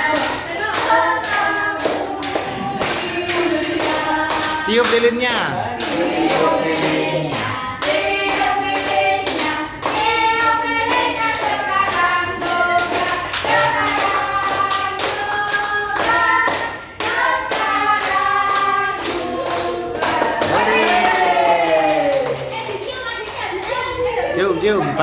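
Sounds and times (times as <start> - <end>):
group singing: 0.0 - 22.5.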